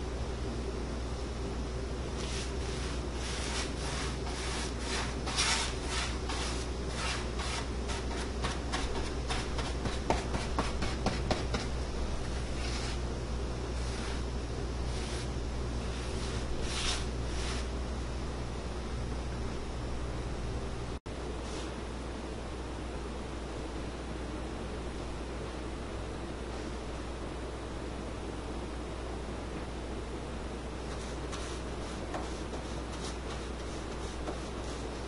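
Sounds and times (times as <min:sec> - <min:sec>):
sanding block rubbing wood: 0:02.2 - 0:11.7, 0:12.5 - 0:13.0, 0:14.9 - 0:17.7, 0:30.9 - 0:35.0.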